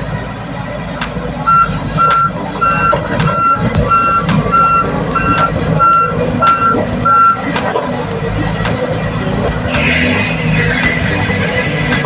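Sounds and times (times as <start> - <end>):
diesel engine running: 0.0 - 12.0
excavator reverse alarm beeping: 1.4 - 7.5.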